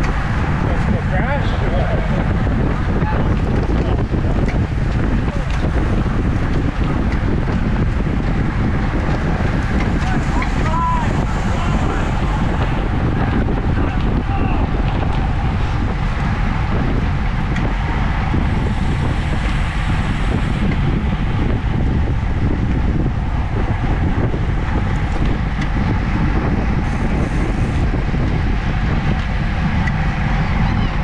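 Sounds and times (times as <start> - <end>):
wind buffeting microphone: 0.0 - 31.0.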